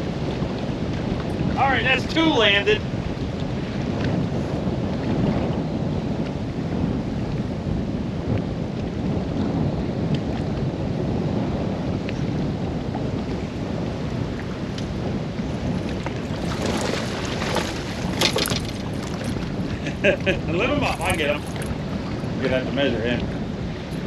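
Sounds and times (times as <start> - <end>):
wind buffeting microphone: 0.0 - 24.0
water slapping against boat: 12.2 - 24.0.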